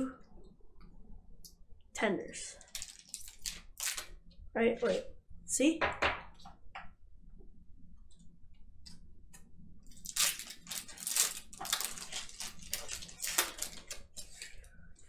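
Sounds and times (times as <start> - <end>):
foil wrapper tearing and crinkling: 2.6 - 4.1, 9.9 - 14.5.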